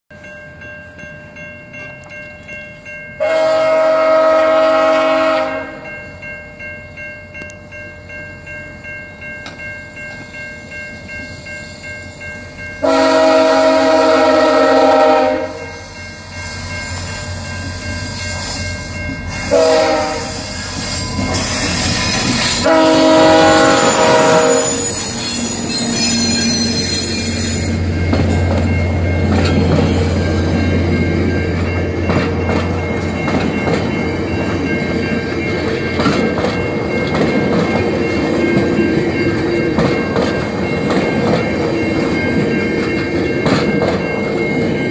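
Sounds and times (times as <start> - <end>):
train horn blowing: 3.2 - 5.9, 12.8 - 15.9, 19.4 - 28.2
level crossing bell ringing: 5.5 - 44.9
train rumbling past: 8.8 - 44.9
train wheel clatter: 16.9 - 44.9.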